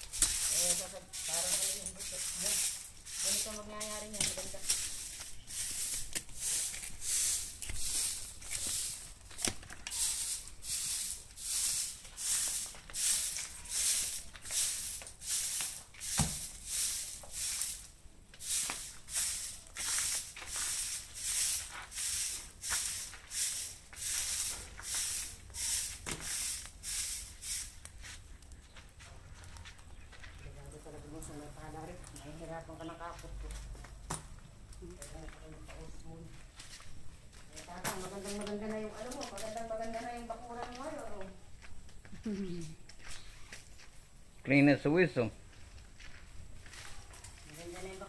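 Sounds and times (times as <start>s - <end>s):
broom sweeping dry leaves: 0.0s - 28.4s, 36.4s - 41.2s, 46.1s - 48.0s.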